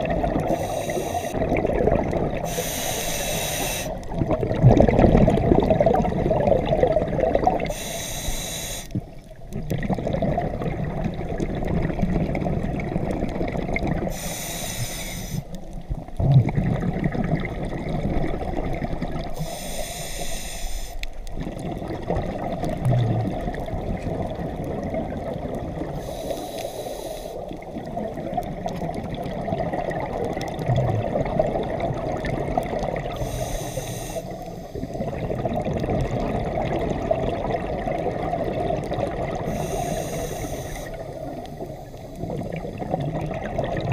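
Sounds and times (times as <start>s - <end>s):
bubbling exhale: 0.0s - 43.9s
hissing regulator inhale: 0.4s - 1.4s, 2.4s - 4.1s, 7.6s - 9.1s, 14.1s - 15.6s, 19.4s - 21.2s, 25.9s - 27.6s, 33.1s - 35.1s, 39.4s - 42.4s.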